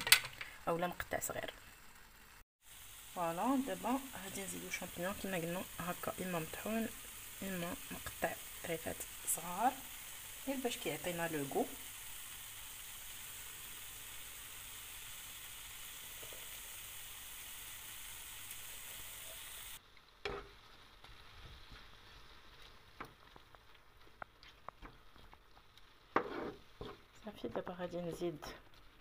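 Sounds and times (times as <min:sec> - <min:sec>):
vegetables sizzling in a pan: 0:00.0 - 0:29.0
wooden spoon stirring: 0:20.2 - 0:29.0.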